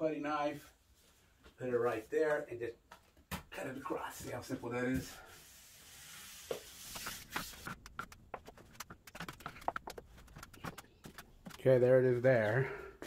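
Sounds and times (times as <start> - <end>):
putty knife scraping wall: 5.4 - 11.3.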